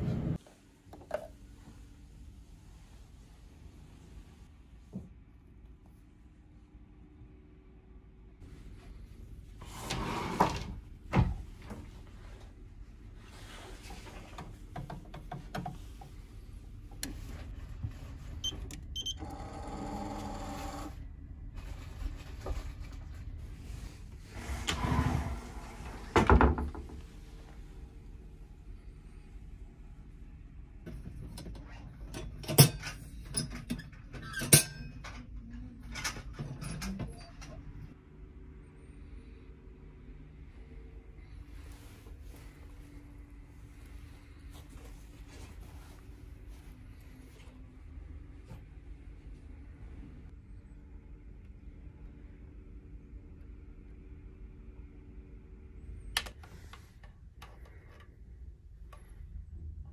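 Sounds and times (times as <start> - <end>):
keypad beeps: 18.4 - 19.2
safe lock motor whirring: 18.5 - 21.0.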